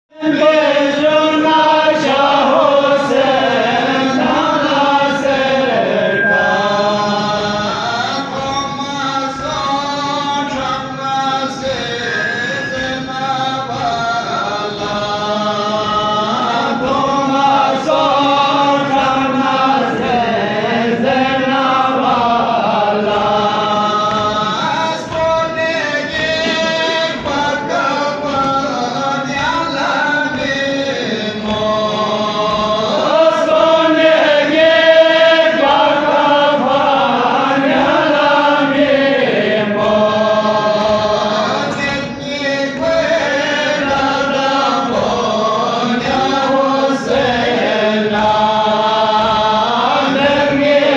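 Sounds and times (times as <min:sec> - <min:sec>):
men chanting a lament: 0:00.1 - 0:50.9
rhythmic chest-beating: 0:00.2 - 0:50.9.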